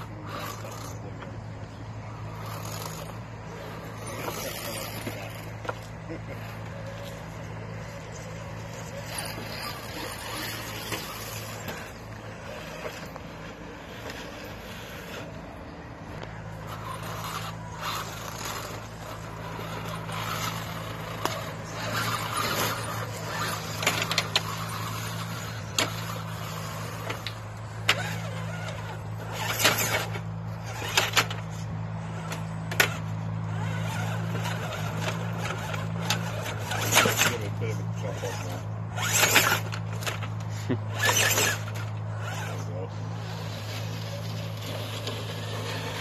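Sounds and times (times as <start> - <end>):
electric motor and gears whining: 0.0 - 46.0
clicks and knocks from tyres: 16.1 - 37.4.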